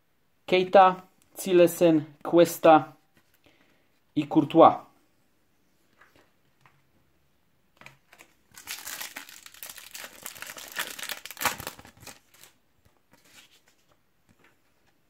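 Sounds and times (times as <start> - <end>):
foil pack crinkling and tearing: 8.2 - 12.6.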